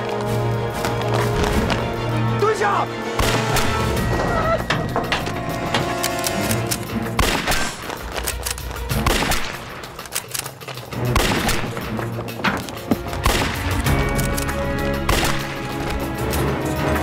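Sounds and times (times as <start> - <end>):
dramatic film score: 0.0 - 17.0
sharp gunshots: 3.1 - 3.9, 7.1 - 7.9, 9.0 - 9.9, 11.0 - 11.8, 15.0 - 15.6.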